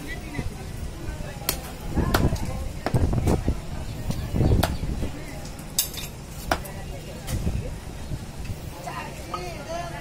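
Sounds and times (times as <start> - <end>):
chopper chopping meat and bone: 1.5 - 3.1.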